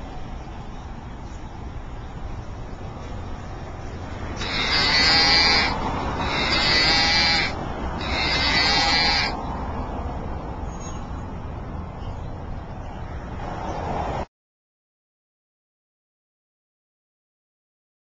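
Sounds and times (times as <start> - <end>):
toy playing recorded moo: 4.4 - 9.4.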